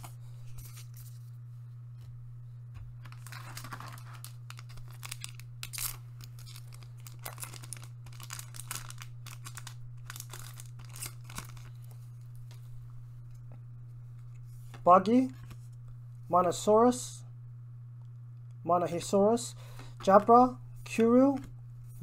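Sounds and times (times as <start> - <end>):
low hum: 0.0 - 22.0
foil pack crinkling and tearing: 3.0 - 12.6.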